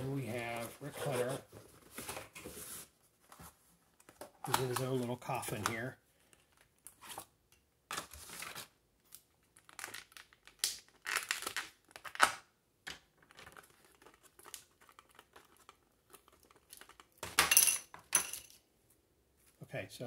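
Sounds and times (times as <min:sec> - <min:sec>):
plastic packaging crinkling: 0:08.0 - 0:12.2.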